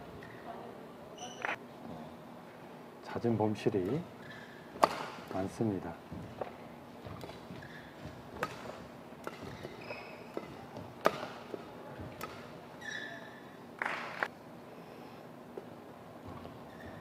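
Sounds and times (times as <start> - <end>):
shoes squeaking on court floor: 1.2 - 1.6, 4.1 - 5.5, 6.1 - 14.2, 16.2 - 17.0
racket striking shuttlecock: 4.2 - 5.4, 7.1 - 12.6.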